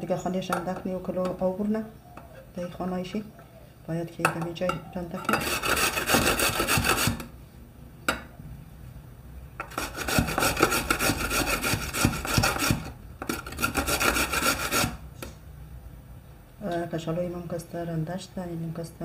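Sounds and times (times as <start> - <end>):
potatoes rasping on a grater: 5.3 - 7.3, 9.7 - 15.0.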